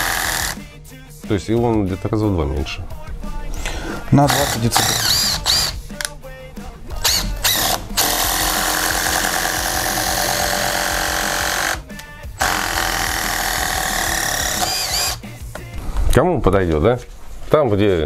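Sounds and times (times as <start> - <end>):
impact driver driving screws: 0.0 - 0.6, 4.3 - 5.8, 7.0 - 11.8, 12.4 - 15.2.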